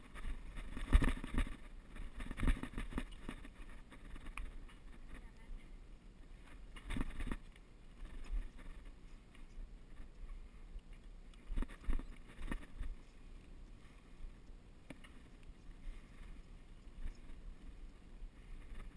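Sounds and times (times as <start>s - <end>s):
bike knocking and rattling: 0.0s - 5.3s, 6.7s - 9.1s, 11.4s - 13.2s.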